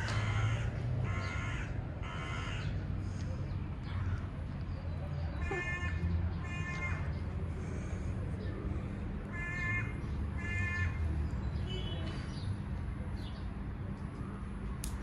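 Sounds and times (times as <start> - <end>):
crow cawing: 0.0 - 2.7, 5.4 - 7.9, 9.3 - 11.0.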